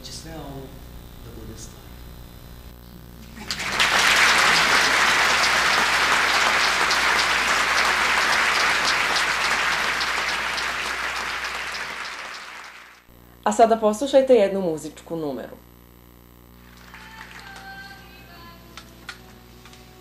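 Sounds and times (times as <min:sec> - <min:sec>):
audience applauding: 0:03.4 - 0:13.1, 0:16.7 - 0:17.7.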